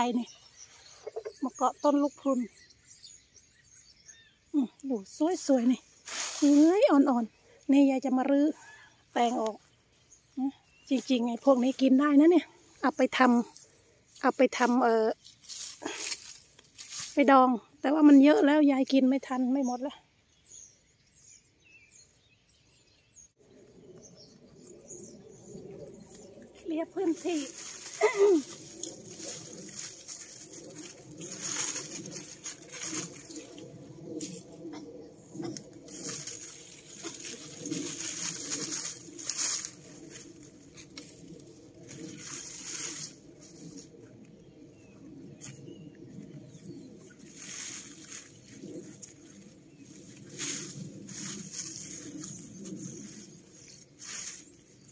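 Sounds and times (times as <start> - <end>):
small birds chirping: 0.0 - 54.9
dry vines rustling: 4.5 - 18.6, 25.8 - 54.9.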